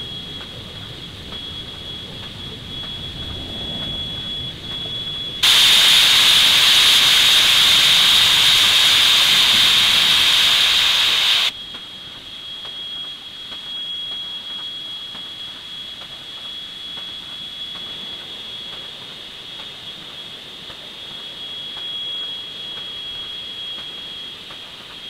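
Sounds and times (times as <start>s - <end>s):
generator high whine: 0.0s - 25.0s
loud steam hiss: 5.4s - 11.5s.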